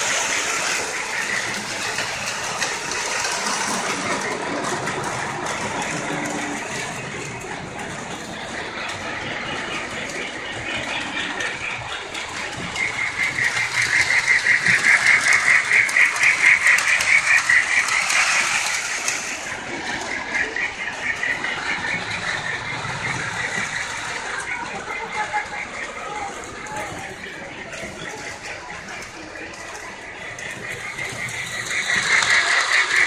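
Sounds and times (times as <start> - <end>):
model train clattering on track: 0.0 - 33.0.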